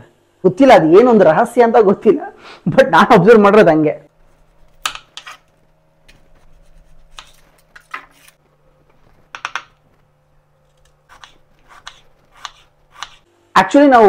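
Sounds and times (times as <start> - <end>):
knife knocking on wooden board: 9.3 - 9.8.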